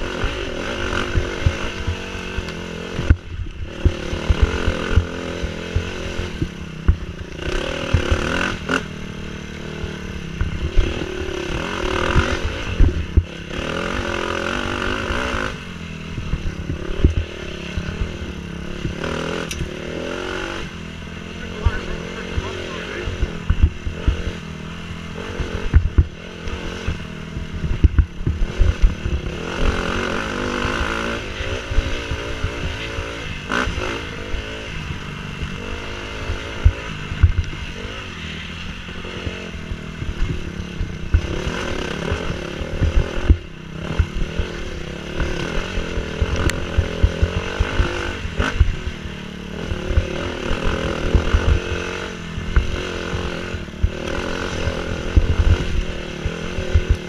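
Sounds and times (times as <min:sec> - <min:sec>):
dirt bike engine revving: 0:00.0 - 0:57.0
low thumps and knocks: 0:12.0 - 0:13.3, 0:16.0 - 0:19.8, 0:23.2 - 0:29.8, 0:36.3 - 0:37.6.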